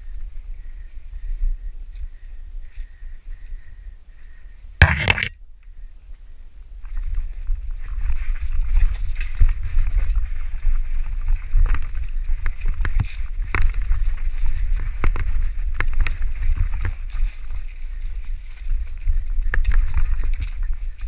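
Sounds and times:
wind rumbling on microphone: 0:00.0 - 0:21.0
bike knocking and rattling: 0:04.8 - 0:05.3, 0:07.8 - 0:21.0.

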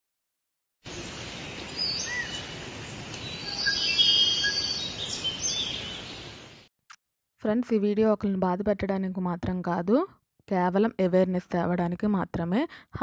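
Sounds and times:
bird chirps and whistles: 0:01.8 - 0:02.4, 0:03.2 - 0:06.1.

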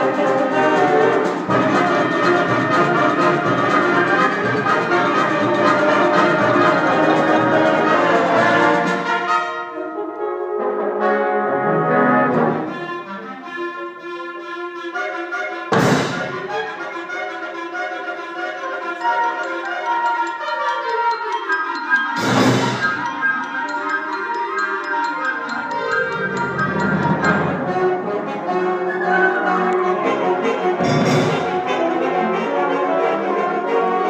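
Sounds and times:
wind band playing: 0:00.0 - 0:34.0
sharp percussion hit: 0:15.7 - 0:16.5, 0:30.8 - 0:31.7.

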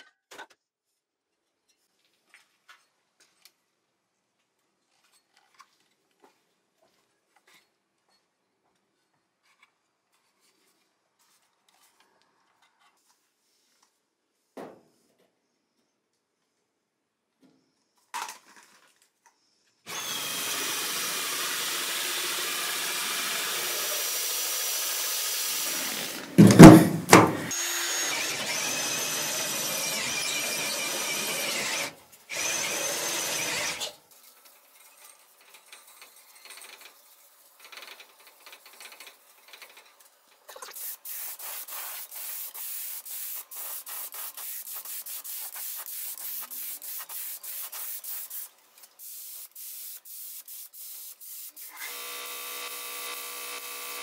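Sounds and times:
power drill whining: 0:19.9 - 0:34.0, 0:51.6 - 0:54.0
loud knock: 0:26.4 - 0:27.5
paint spray gun hissing: 0:40.7 - 0:51.8.

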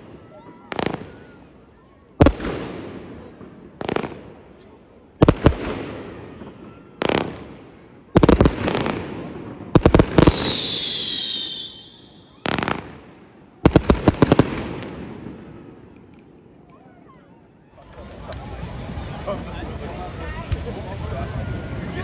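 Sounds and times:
fireworks bangs and cracks: 0:00.0 - 0:16.8, 0:18.0 - 0:22.0
firework high whistle: 0:10.1 - 0:13.0.

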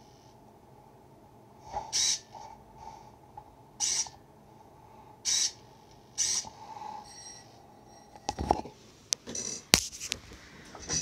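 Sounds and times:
servo whirring: 0:01.8 - 0:02.3, 0:03.8 - 0:04.2, 0:05.3 - 0:05.6, 0:06.2 - 0:06.5.

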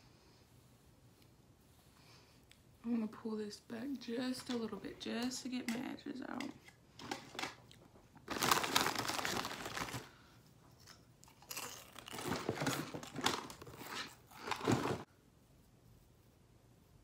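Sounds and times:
rustling and crinkling handling noise: 0:06.3 - 0:15.1.

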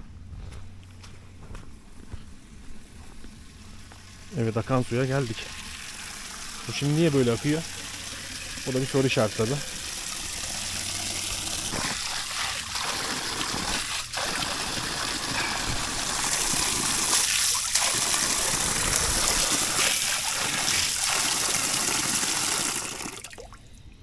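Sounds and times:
water splashing into stone basin: 0:04.8 - 0:23.6.

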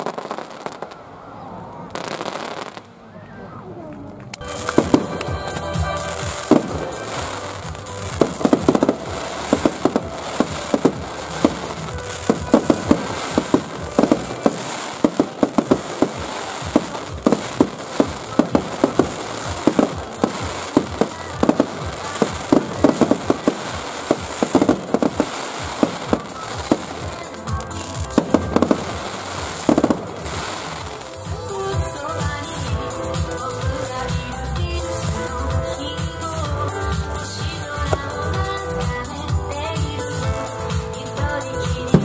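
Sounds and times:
fireworks bursting with bangs: 0:00.0 - 0:01.2, 0:01.8 - 0:03.1, 0:04.4 - 0:42.0
crackling pops: 0:04.0 - 0:31.5.

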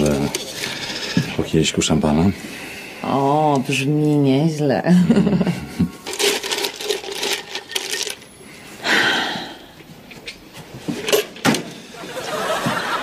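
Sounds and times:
glass and metal clinking: 0:00.0 - 0:01.5, 0:06.0 - 0:08.3.

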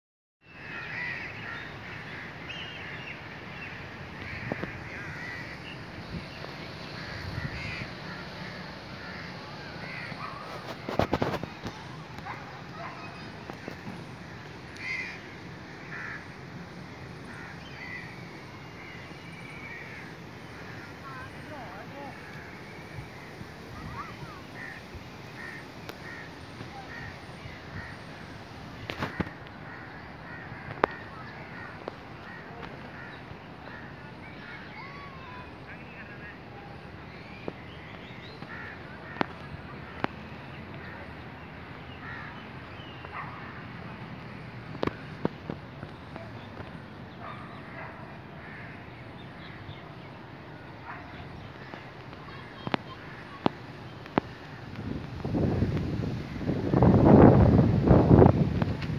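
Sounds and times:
outdoor air hiss: 0:00.5 - 0:47.2.

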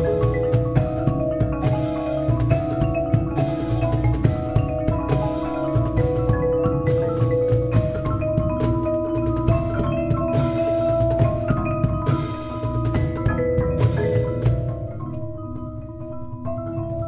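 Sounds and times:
drum hits: 0:00.0 - 0:15.1
marimbas playing: 0:00.0 - 0:17.0.

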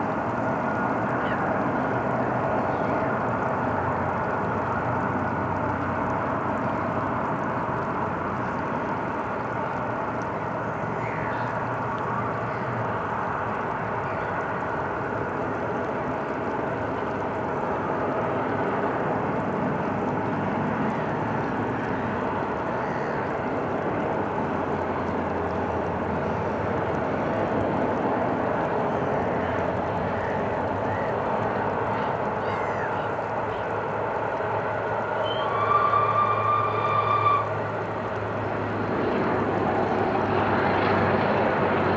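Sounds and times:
bird calling: 0:10.9 - 0:12.8, 0:22.7 - 0:23.3, 0:29.2 - 0:31.2, 0:32.0 - 0:33.8, 0:35.2 - 0:37.5
steam train rumbling past: 0:30.6 - 0:41.9.

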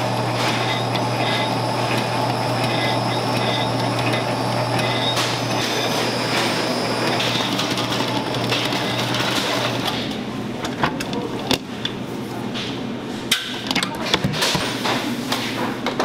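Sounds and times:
stand mixer motor humming: 0:00.0 - 0:10.3.

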